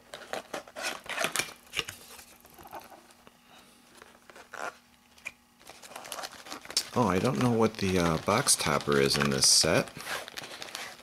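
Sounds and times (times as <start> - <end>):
cardboard rustling: 5.6 - 11.0.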